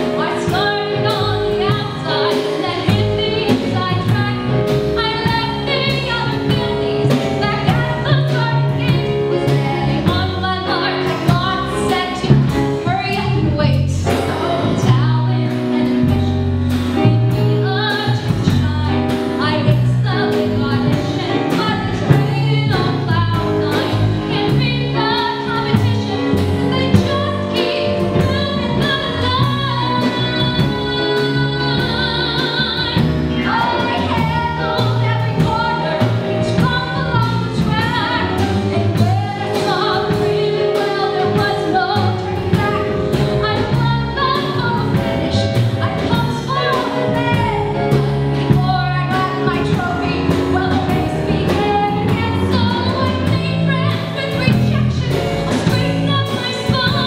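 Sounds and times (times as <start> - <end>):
live band playing: 0.0 - 57.0
woman singing into microphone: 0.0 - 57.0.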